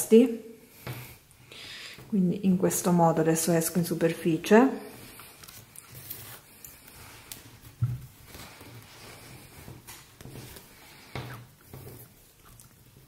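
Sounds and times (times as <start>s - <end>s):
rustling and handling of bag: 5.0s - 13.0s.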